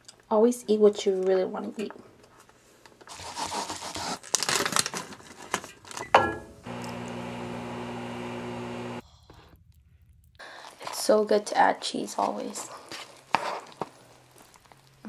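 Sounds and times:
plastic sachet tearing and crinkling: 3.1s - 6.0s
microwave oven humming: 6.6s - 9.0s.

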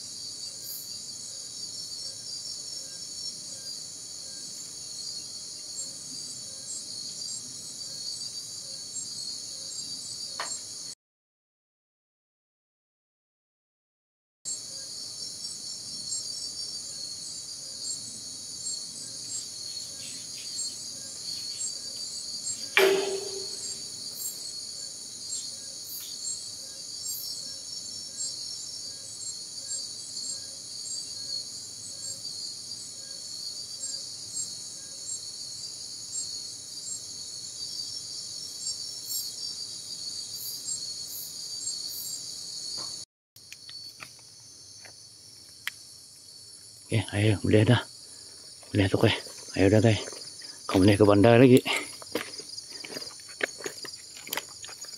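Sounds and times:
night insects chirping: 0.0s - 11.0s, 14.5s - 54.9s
sharp knock: 22.8s - 23.9s.

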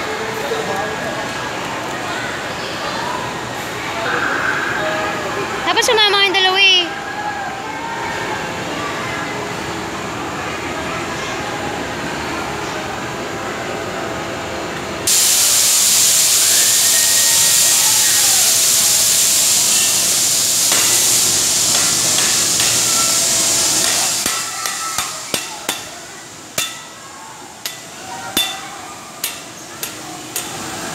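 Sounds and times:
compressed air hissing: 15.1s - 26.0s.

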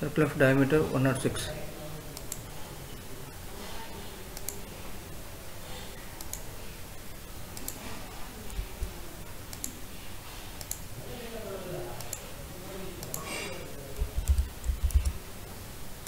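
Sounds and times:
computer mouse clicks: 2.2s - 2.5s, 4.4s - 4.6s, 6.2s - 6.5s, 7.5s - 8.6s, 9.5s - 9.8s, 10.6s - 10.9s, 12.0s - 12.3s, 13.0s - 13.3s, 14.2s - 15.2s.

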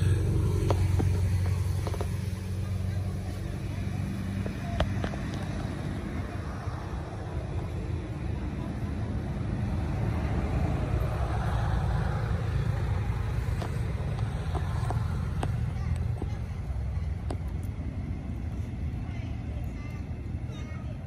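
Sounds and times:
low motor rumble and hum: 0.0s - 21.0s.

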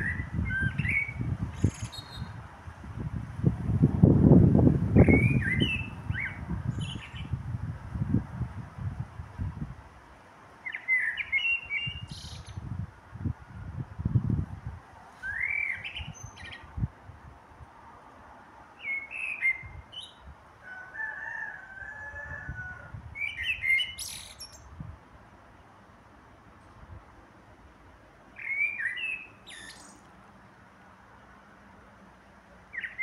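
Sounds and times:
blackbird singing: 0.0s - 2.4s, 5.0s - 7.4s, 10.7s - 12.6s, 15.2s - 16.7s, 18.8s - 20.2s, 23.2s - 24.7s, 28.4s - 30.1s, 32.7s - 33.0s.

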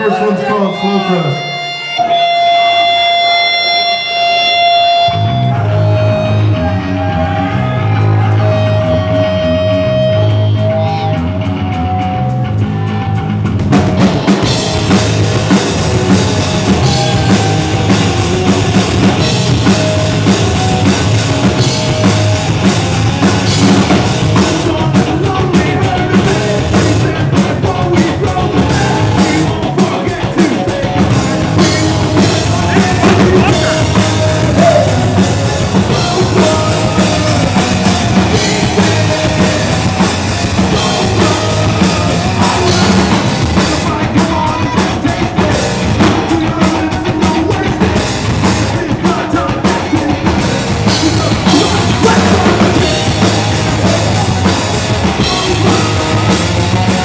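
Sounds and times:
sustained electric guitar notes: 0.0s - 30.2s, 30.8s - 44.8s
drum kit: 0.0s - 57.0s
rock band playing live: 0.0s - 57.0s.

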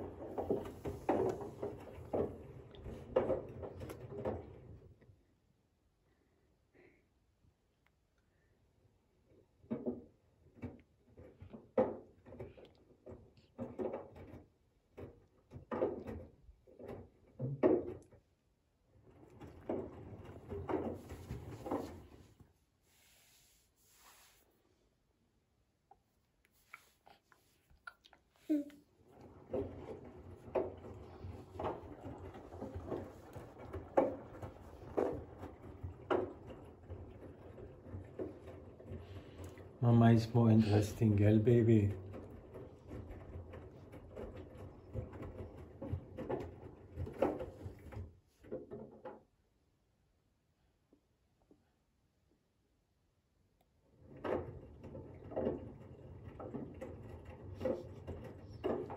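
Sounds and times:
washing machine hum: 0.0s - 7.6s, 8.3s - 25.8s, 26.5s - 49.1s, 52.8s - 58.9s.

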